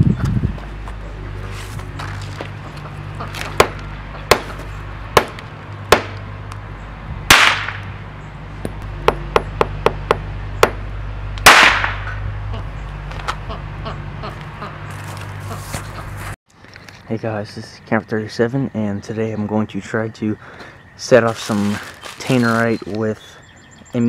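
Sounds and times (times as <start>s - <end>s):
steady low hum: 0.0s - 22.3s
sharp cracks: 3.2s - 4.6s, 5.2s - 6.3s, 7.3s - 7.9s, 11.4s - 12.2s
loud bangs trailing into hiss: 7.3s - 7.8s, 11.4s - 12.1s.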